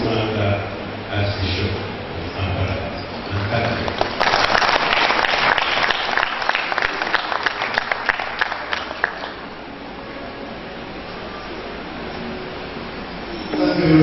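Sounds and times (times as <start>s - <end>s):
audience applauding: 3.2s - 9.5s.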